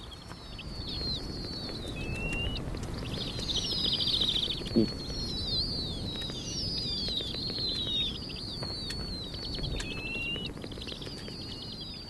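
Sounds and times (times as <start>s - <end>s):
owlets squealing calls: 3.3s - 10.5s.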